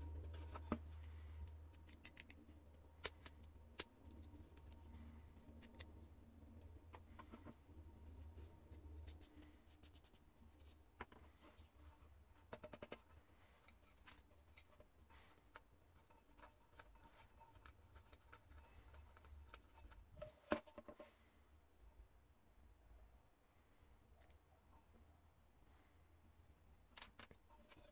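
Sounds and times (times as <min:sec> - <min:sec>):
low hum: 0:00.0 - 0:09.7
small metal parts clicking: 0:01.7 - 0:04.9.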